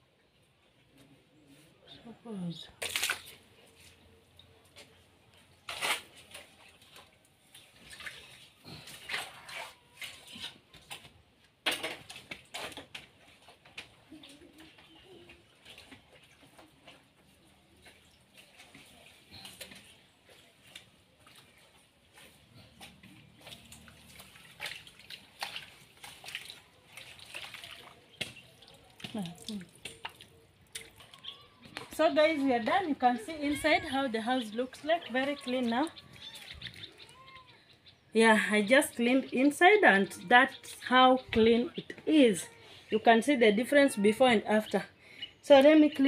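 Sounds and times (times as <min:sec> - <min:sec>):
water splashing: 0:02.7 - 0:03.6, 0:05.7 - 0:11.1, 0:12.0 - 0:37.4
wet scrubbing: 0:05.6 - 0:11.1, 0:12.1 - 0:37.3.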